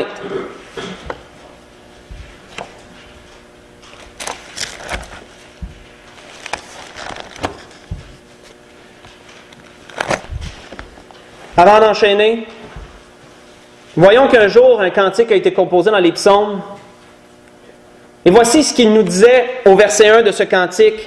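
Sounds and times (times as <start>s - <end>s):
faint steady hum: 0.0s - 21.0s
book pages rustling: 1.0s - 11.3s
soft low thumps: 1.1s - 3.8s, 5.5s - 6.1s.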